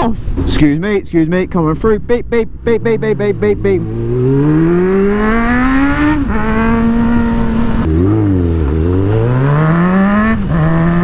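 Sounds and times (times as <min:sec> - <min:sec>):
motorcycle engine revving: 0:02.7 - 0:11.0.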